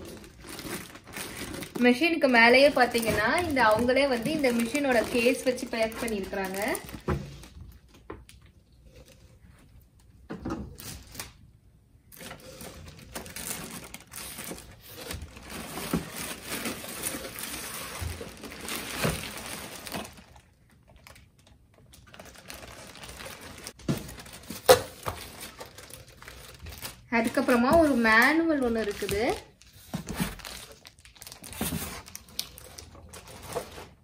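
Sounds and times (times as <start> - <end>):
plastic packaging crinkling: 0.0 - 8.4, 12.1 - 34.0
cardboard rustling: 22.2 - 34.0.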